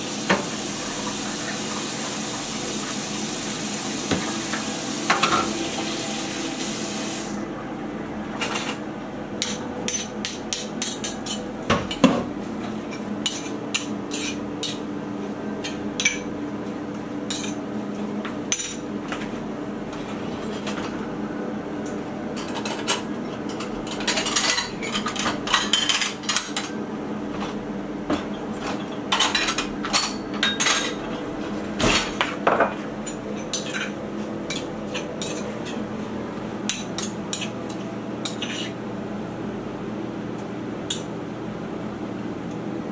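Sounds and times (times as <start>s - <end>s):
steady low hum: 0.3s - 42.9s
dishes and utensils clinking: 22.4s - 26.8s, 28.1s - 31.2s, 31.8s - 35.8s, 36.7s - 38.8s.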